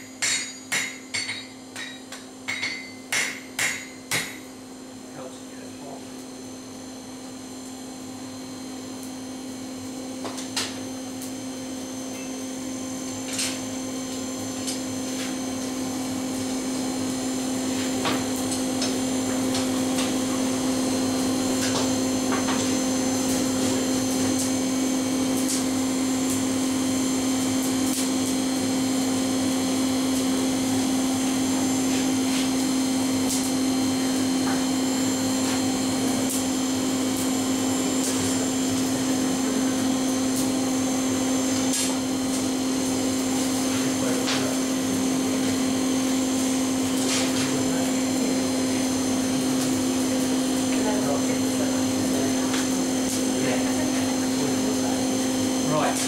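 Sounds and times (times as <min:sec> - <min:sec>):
air blower humming: 0:10.9 - 0:56.0.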